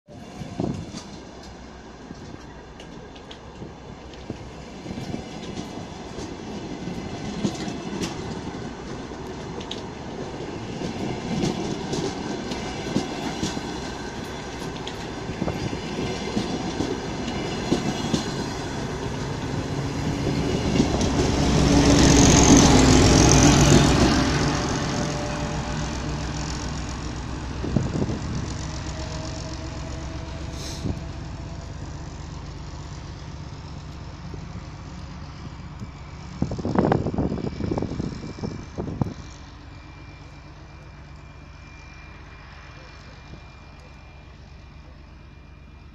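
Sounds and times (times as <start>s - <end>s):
diesel locomotive engine drone: 0.1s - 45.9s
train wheels clicking over rail joints: 0.7s - 29.7s.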